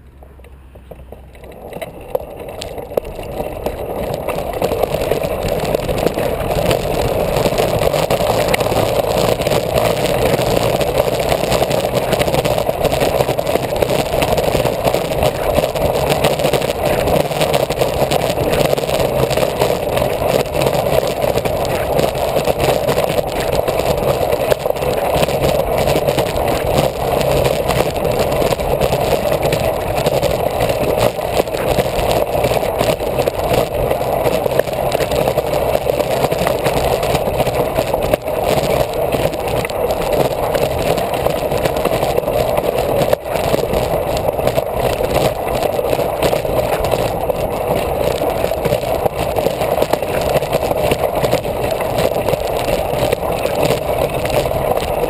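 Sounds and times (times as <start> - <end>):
monowheel mechanical running noise: 0.0 - 55.0.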